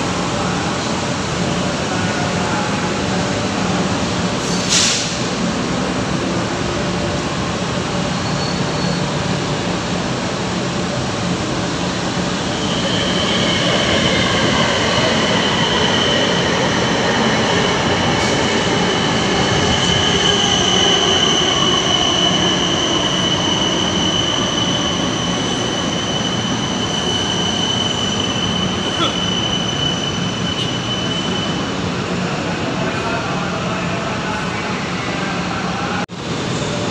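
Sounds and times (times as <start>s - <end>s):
high wheel squeal: 8.2s - 9.2s, 19.1s - 31.8s.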